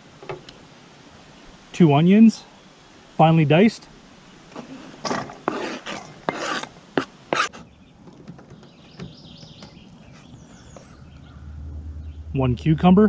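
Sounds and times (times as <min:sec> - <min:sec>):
knife scraping cutting board: 0:04.6 - 0:07.6.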